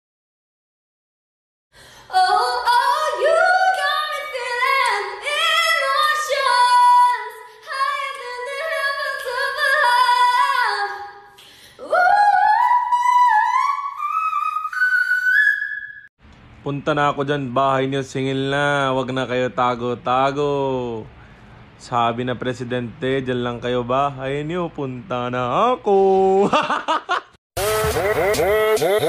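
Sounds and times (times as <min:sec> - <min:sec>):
woman singing high melody: 0:02.1 - 0:11.1, 0:11.8 - 0:15.6.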